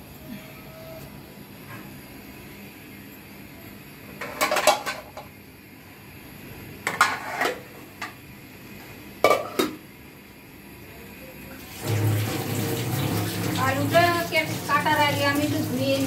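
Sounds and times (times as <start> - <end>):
metal pots and plates clanking: 4.2 - 5.3, 6.9 - 7.6, 9.2 - 9.8.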